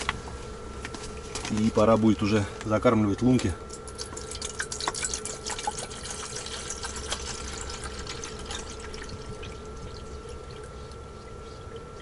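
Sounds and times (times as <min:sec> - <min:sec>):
steady hum: 0:00.0 - 0:12.0
water pouring into kettle: 0:04.0 - 0:10.6.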